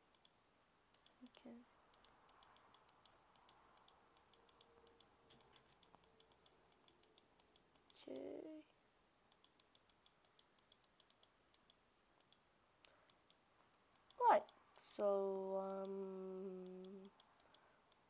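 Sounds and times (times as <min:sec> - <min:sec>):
computer mouse clicks: 0:00.0 - 0:08.4, 0:09.3 - 0:14.9, 0:15.6 - 0:18.0
muffled humming voice: 0:14.2 - 0:17.1.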